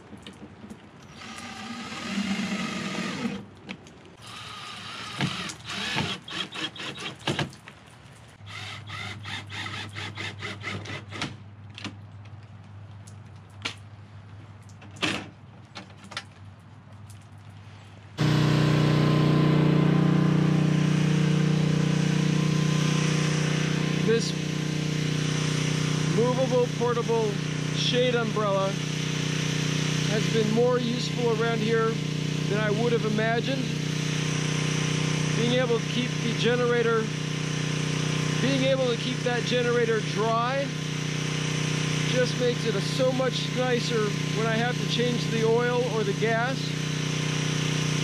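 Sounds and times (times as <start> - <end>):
generator running: 1.0 - 3.5, 4.2 - 7.2, 18.2 - 48.0
cordless drill whirring: 1.1 - 3.4, 4.2 - 7.2, 8.4 - 11.2.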